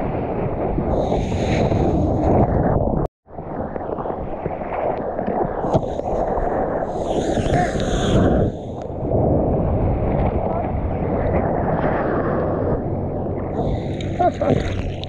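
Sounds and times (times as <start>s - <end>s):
wind rumble on microphone: 0.0s - 15.0s
water sloshing and splashing: 11.2s - 15.0s.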